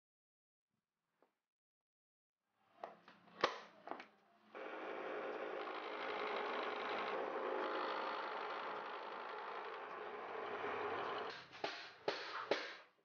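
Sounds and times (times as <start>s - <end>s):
drill press humming: 4.6s - 11.4s.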